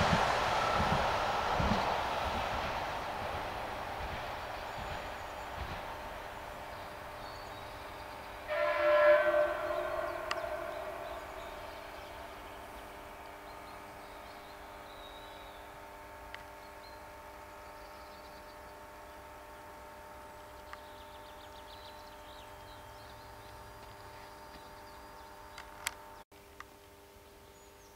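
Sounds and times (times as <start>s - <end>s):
faint hum of passing train: 0.0s - 26.2s
electric train horn blast: 7.2s - 15.1s.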